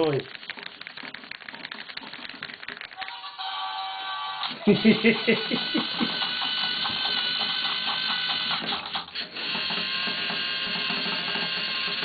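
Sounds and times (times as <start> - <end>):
treads rattling clicks: 0.0 - 3.1.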